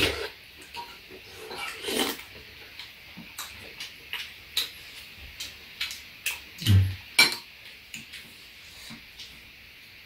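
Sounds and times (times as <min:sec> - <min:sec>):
mouth eating noise: 0:05.4 - 0:07.1.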